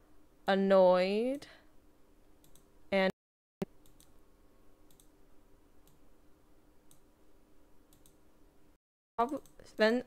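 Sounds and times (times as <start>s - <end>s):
low steady hum: 0.0s - 10.0s
computer mouse clicks: 2.4s - 2.7s, 3.6s - 4.2s, 4.8s - 5.1s, 5.8s - 6.0s, 6.8s - 7.1s, 7.9s - 8.2s, 9.2s - 9.9s.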